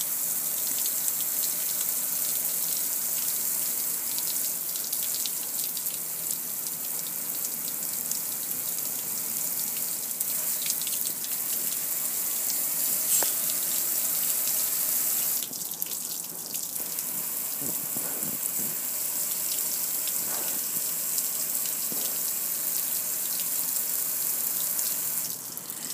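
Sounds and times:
hose spraying on metal grill: 11.4s - 15.4s, 17.1s - 25.9s.

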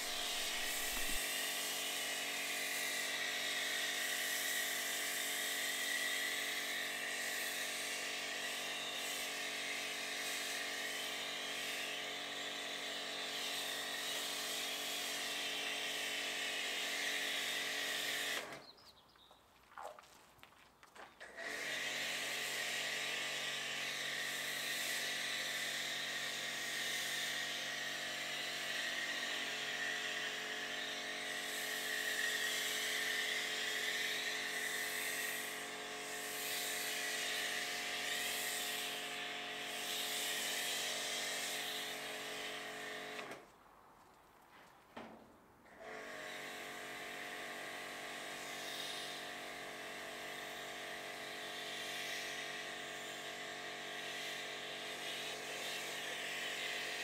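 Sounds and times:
foam gun hissing: 0.0s - 18.5s, 31.3s - 42.2s
pressure washer motor whining: 0.0s - 18.7s, 21.2s - 43.4s.

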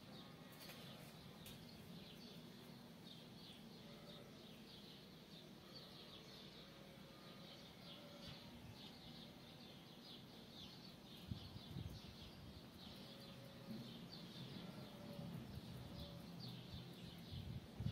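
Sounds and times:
faint bird chirping: 0.0s - 17.9s.

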